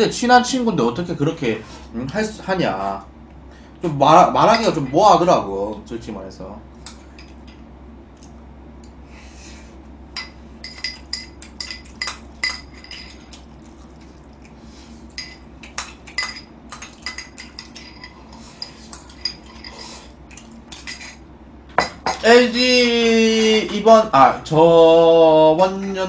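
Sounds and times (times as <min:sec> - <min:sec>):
spoon clinking against cup: 0:10.2 - 0:13.2, 0:15.2 - 0:19.8.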